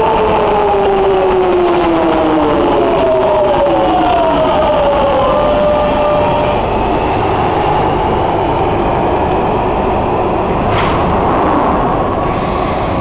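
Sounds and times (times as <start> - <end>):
train rumble: 0.0 - 13.0
train doors clicking open: 10.2 - 11.5.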